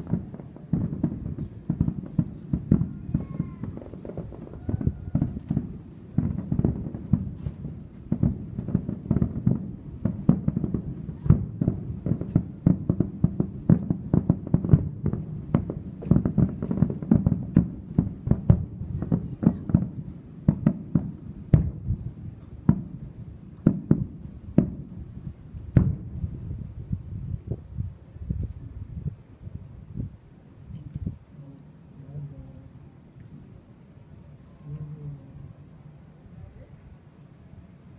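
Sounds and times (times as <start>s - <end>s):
fireworks bursting: 0.0s - 36.2s.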